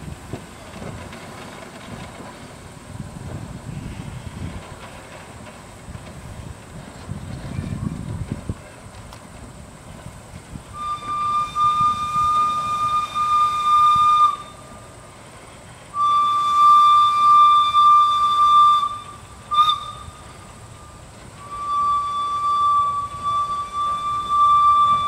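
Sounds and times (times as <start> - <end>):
steam whistle blasts: 10.7 - 14.9, 15.9 - 25.0.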